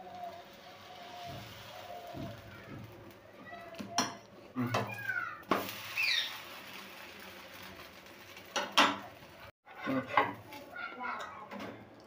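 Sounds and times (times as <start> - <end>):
utensils clinking against a pan: 8.4 - 10.5.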